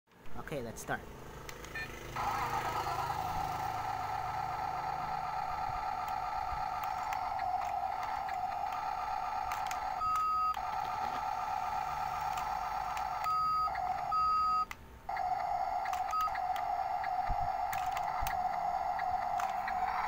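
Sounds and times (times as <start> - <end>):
toy truck buzzing hum: 1.5 - 20.0
electronic beep: 13.1 - 14.7.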